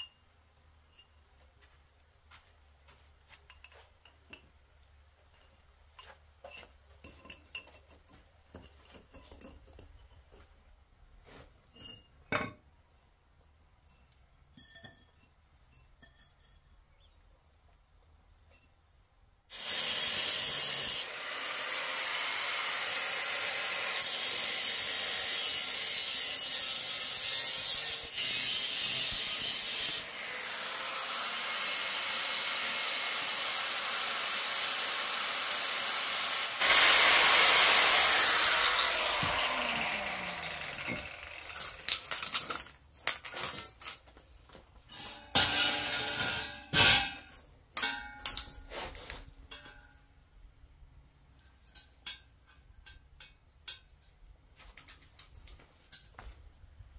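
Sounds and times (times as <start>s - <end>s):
angle grinder cutting metal: 19.5s - 42.4s, 45.4s - 47.2s
metal bars clanking on concrete: 40.8s - 44.3s, 44.9s - 48.7s.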